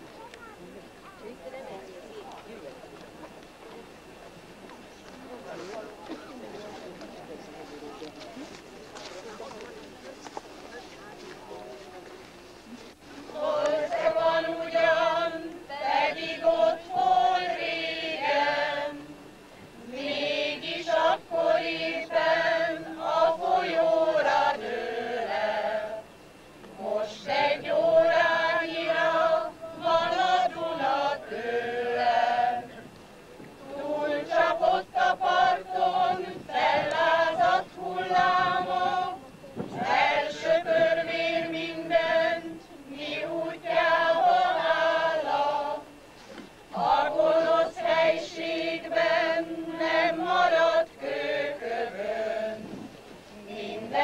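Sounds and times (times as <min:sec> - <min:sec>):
choir singing: 0:13.3 - 0:32.9, 0:33.6 - 0:39.2, 0:39.8 - 0:46.0, 0:46.7 - 0:54.0.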